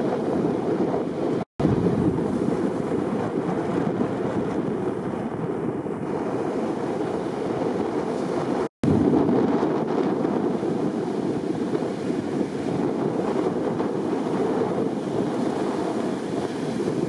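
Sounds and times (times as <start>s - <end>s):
wind buffeting microphone: 0.0s - 17.0s
surf breaking: 5.9s - 17.0s.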